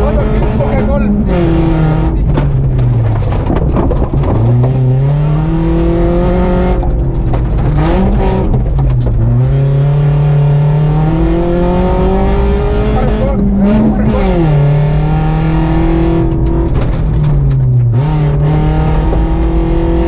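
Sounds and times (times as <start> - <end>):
car engine accelerating: 0.0 - 20.0
gravel crunching under tyres: 2.1 - 10.7.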